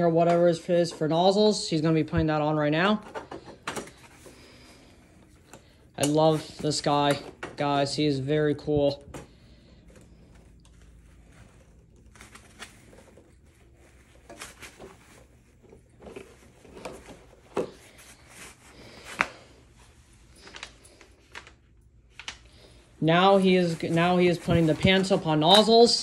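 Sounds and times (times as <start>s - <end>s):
cloth rustling: 0.0s - 26.0s
plastic parts clicking and knocking: 3.0s - 4.4s.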